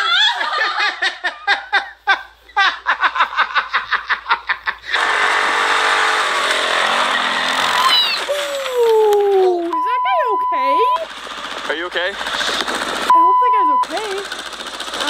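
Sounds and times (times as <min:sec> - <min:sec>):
person laughing: 0:00.0 - 0:05.0, 0:06.9 - 0:09.8
atv engine running: 0:06.4 - 0:15.0.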